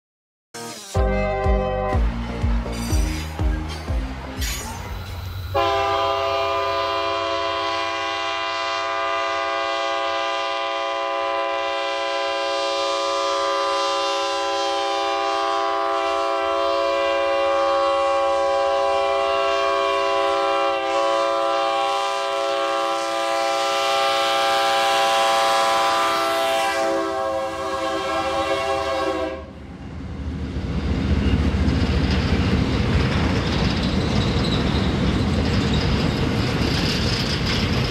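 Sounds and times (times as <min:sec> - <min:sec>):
locomotive horn blast: 0:00.6 - 0:29.6
train rumble: 0:01.0 - 0:37.9.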